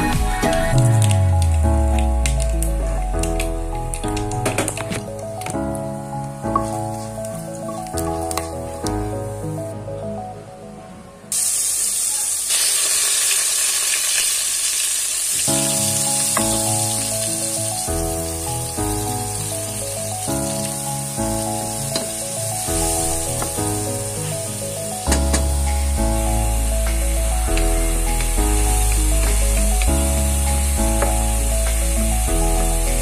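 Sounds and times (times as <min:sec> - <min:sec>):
background music: 0:00.0 - 0:11.6, 0:15.5 - 0:33.0
food sizzling in hot oil: 0:11.3 - 0:33.0.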